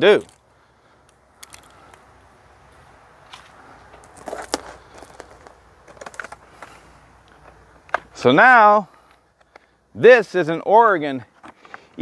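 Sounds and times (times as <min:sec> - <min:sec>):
footsteps on dry leaves: 0:02.6 - 0:06.9
rustling: 0:02.7 - 0:08.2.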